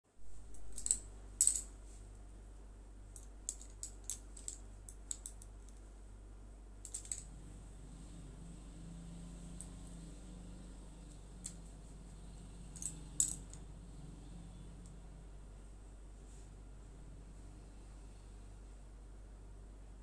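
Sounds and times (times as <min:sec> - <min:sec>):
low electrical hum: 0:00.0 - 0:20.0
bangles clinking: 0:00.5 - 0:01.7, 0:06.8 - 0:07.3, 0:12.6 - 0:13.7.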